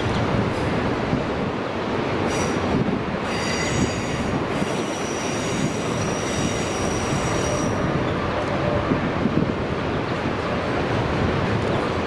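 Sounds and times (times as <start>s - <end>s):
train wagons rumbling past: 0.0s - 12.0s
train wheels squealing: 2.3s - 8.8s.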